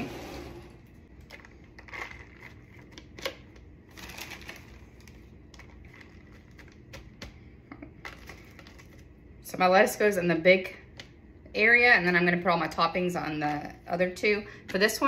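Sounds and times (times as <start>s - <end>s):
lettuce rustling into container: 1.1s - 7.2s.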